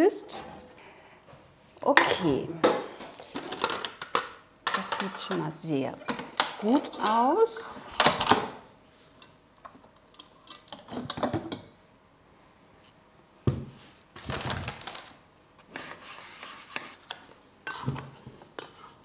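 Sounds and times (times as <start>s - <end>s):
kitchenware clicks: 3.6s - 7.2s.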